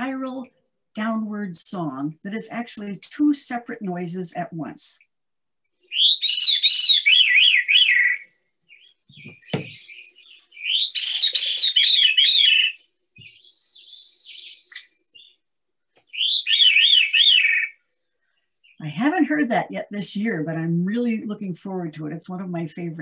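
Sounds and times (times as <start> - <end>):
bird singing downward spiralling song: 5.7 - 18.8
soft high bird calls: 5.8 - 18.8
brief knock: 9.1 - 9.8.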